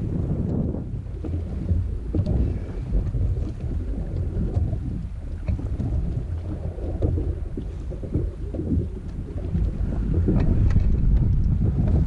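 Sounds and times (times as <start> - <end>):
wind buffeting microphone: 0.0 - 12.0
faint light ticks: 0.4 - 0.6.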